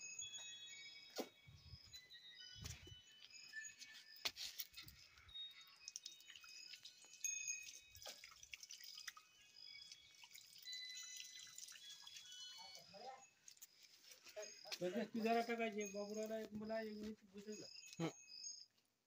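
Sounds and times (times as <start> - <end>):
small birds chirping: 9.0 - 18.8.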